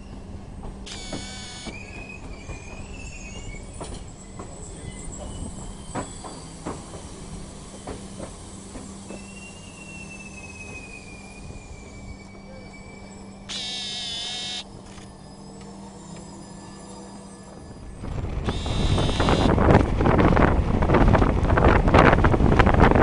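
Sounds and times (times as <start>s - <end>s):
train rumbling on rails: 0.0s - 13.7s, 14.6s - 23.0s
rail clicks: 0.6s - 9.3s
faint high whine: 0.9s - 1.8s, 13.5s - 15.6s, 18.5s - 19.5s
loud shrill high tone: 13.5s - 14.6s, 18.5s - 19.5s.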